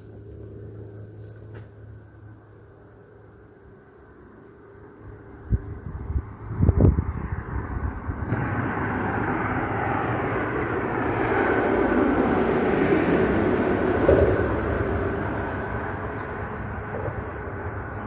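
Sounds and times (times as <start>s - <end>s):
vehicle crossing bridge overhead: 0.0s - 18.0s
small bird chirping: 6.5s - 18.0s.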